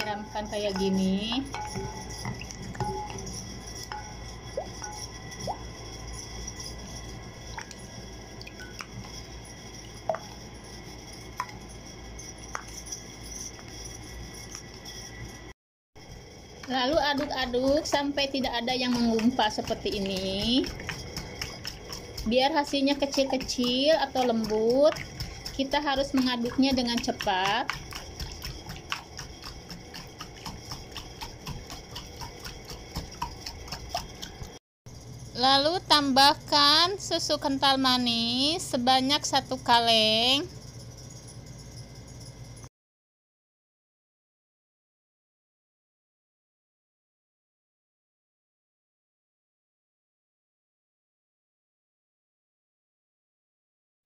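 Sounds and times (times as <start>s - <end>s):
wire whisk beating in glass bowl: 0.0s - 15.4s, 16.2s - 42.7s
plastic spoon knocking glass bowl: 0.5s - 5.6s.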